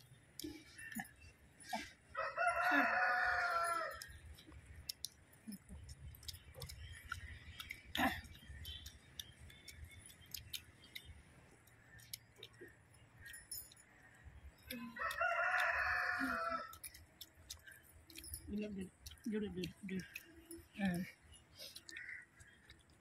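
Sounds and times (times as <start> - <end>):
rooster crowing: 2.1 - 4.0, 14.9 - 16.8.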